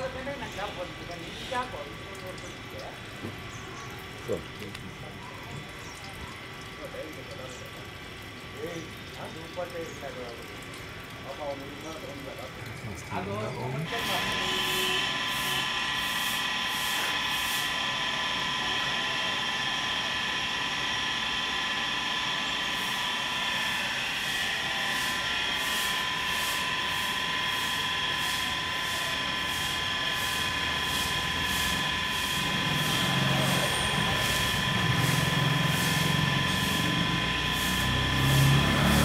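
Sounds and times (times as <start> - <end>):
constant high tones: 0.0 - 39.0
outdoor background hum and hiss: 0.0 - 39.0
high pulsing chirr: 13.8 - 39.0.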